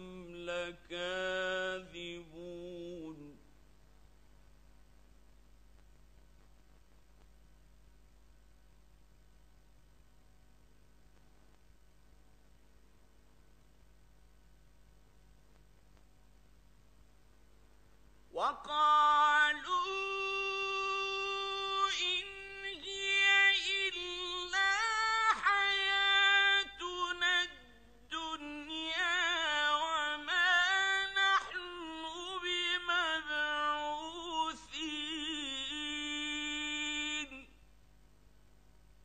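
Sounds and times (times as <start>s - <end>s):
man chanting melodically: 0.0s - 3.4s, 18.4s - 37.5s.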